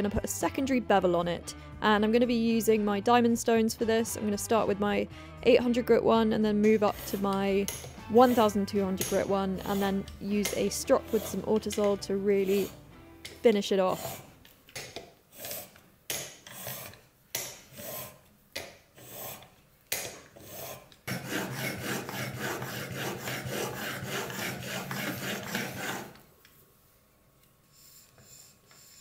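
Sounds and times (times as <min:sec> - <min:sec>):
chisel scraping on sharpening stone: 0:07.0 - 0:12.7, 0:20.4 - 0:26.2.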